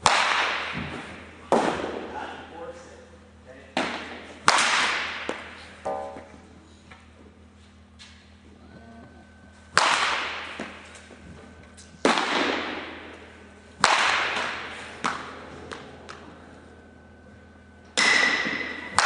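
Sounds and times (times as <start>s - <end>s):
bat cracking balls with echo: 0.0s - 2.3s, 3.7s - 6.4s, 9.6s - 19.0s.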